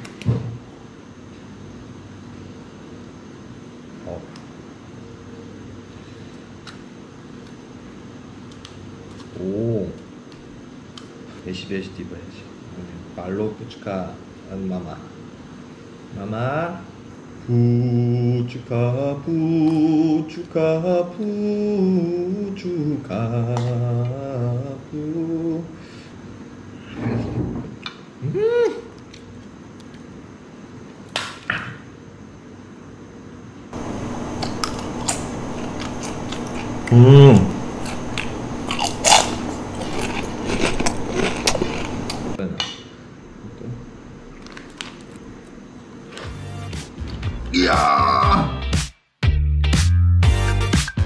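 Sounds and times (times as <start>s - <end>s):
background hiss: 0.0s - 44.3s
man humming: 28.2s - 28.9s, 35.2s - 40.0s.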